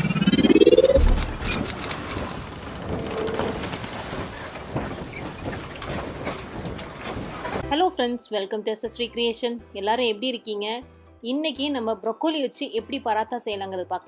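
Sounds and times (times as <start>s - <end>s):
low boom: 0.0s - 1.7s
rising whoosh: 0.0s - 1.9s.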